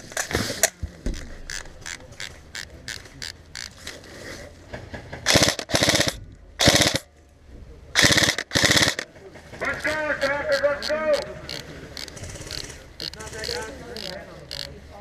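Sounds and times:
airsoft gunfire snaps: 5.3 - 7.0
airsoft rifle full-auto bursts: 5.3 - 7.1, 8.0 - 9.1, 9.7 - 14.7.

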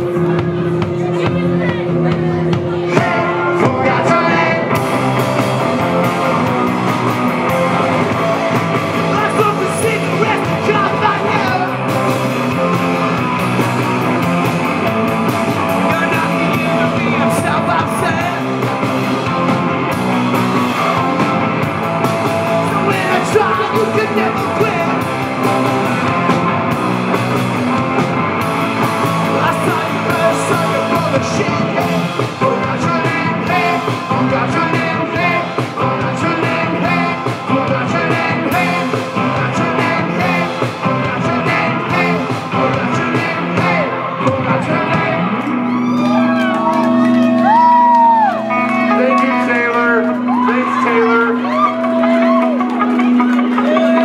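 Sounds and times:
person singing: 0.0 - 8.4, 9.0 - 12.0, 22.5 - 25.1, 29.2 - 52.7
drum kit: 0.0 - 50.8
electric guitars: 0.0 - 54.0.

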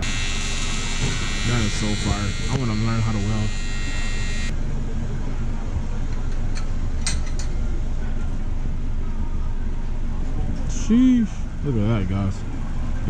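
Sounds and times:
welding arc buzzing: 0.0 - 4.5.

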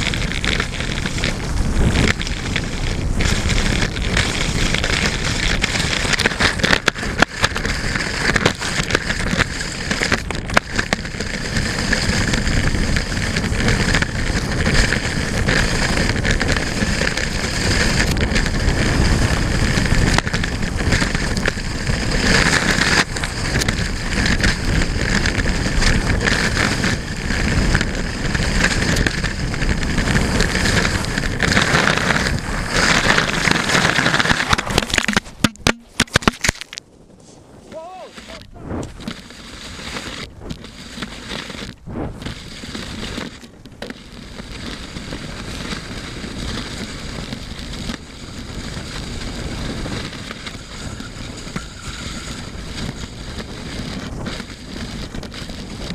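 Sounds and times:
skis hissing over snow: 0.0 - 35.4, 37.2 - 55.9
wind rushing over microphone: 0.0 - 55.9.

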